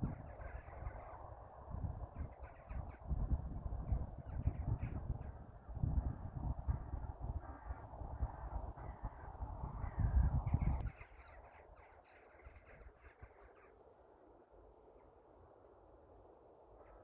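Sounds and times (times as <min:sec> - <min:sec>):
flock of birds calling: 0:00.0 - 0:01.3, 0:02.1 - 0:03.2, 0:03.9 - 0:05.4, 0:07.4 - 0:13.8
wind buffeting microphone: 0:00.0 - 0:13.4.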